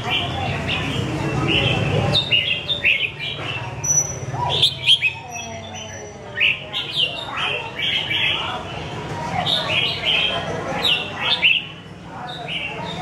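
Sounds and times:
bird singing whistled notes: 3.8 - 7.2.

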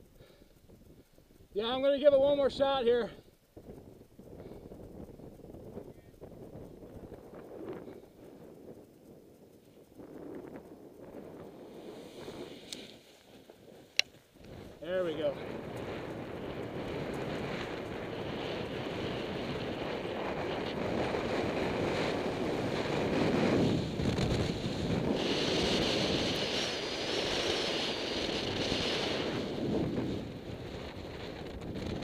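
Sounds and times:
wind rushing on microphone: 0.0 - 32.0
high hiss: 7.3 - 16.4.

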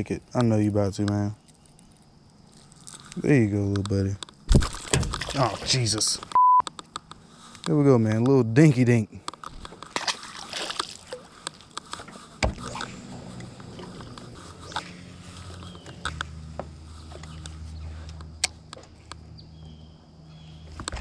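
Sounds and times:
low steady hum: 9.9 - 21.0.

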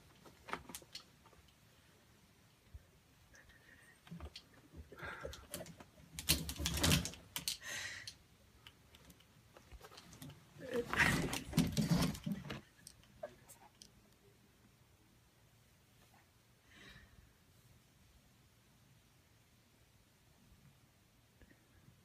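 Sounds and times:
clothes rustling: 0.0 - 2.7, 9.3 - 13.7
plastic hangers clattering: 5.4 - 7.6.

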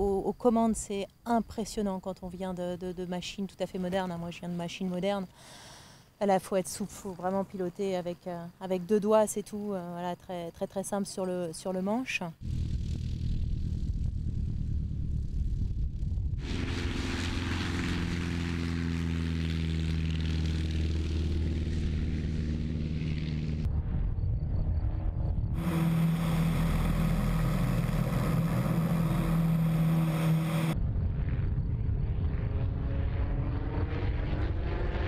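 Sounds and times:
propeller airplane engine running: 12.3 - 33.3.

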